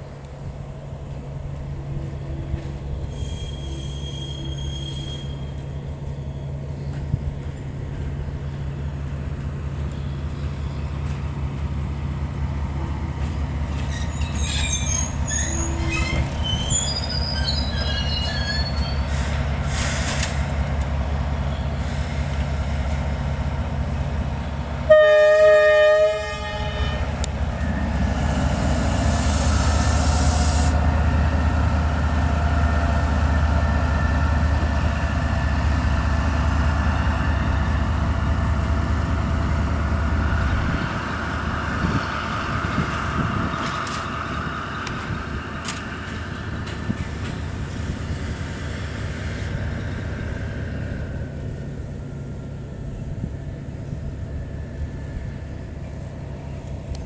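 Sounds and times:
locomotive engine drone: 0.0s - 57.0s
wheel squeals: 3.0s - 6.5s, 13.8s - 19.1s
locomotive horn blast: 24.9s - 27.3s.

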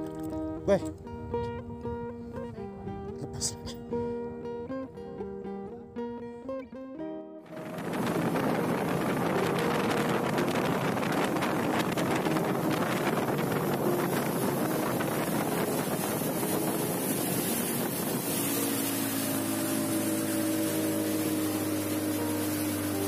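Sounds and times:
motorboat engine drone: 7.4s - 23.0s
water rushing against hull: 7.4s - 23.0s
wind buffeting microphone: 7.5s - 23.0s.

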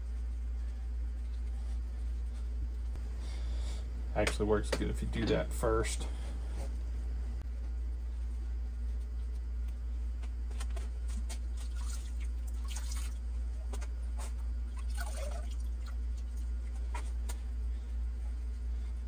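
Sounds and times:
steady low hum: 0.0s - 19.0s
water dripping from wet rag: 11.6s - 13.2s.

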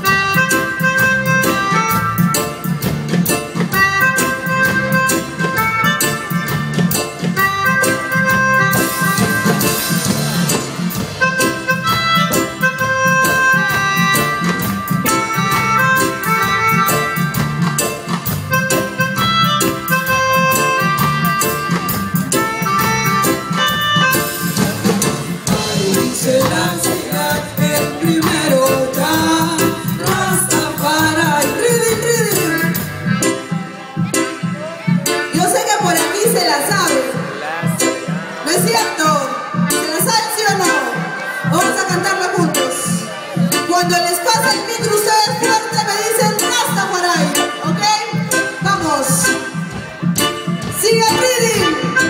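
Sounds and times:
live band playing: 0.0s - 52.0s.

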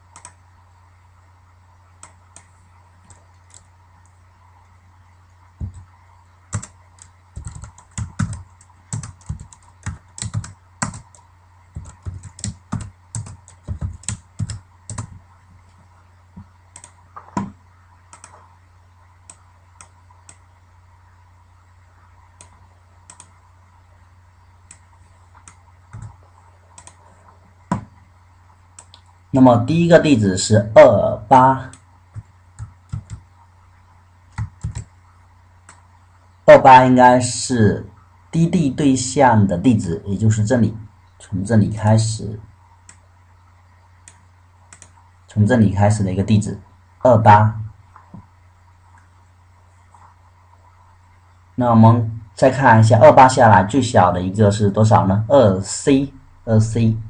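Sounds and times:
steady low hum: 0.0s - 57.0s
computer keyboard typing: 0.1s - 0.4s, 2.0s - 3.7s, 5.6s - 5.9s, 6.5s - 15.2s, 16.7s - 18.5s, 22.4s - 23.4s, 24.7s - 27.0s, 31.7s - 33.3s, 34.3s - 34.9s.

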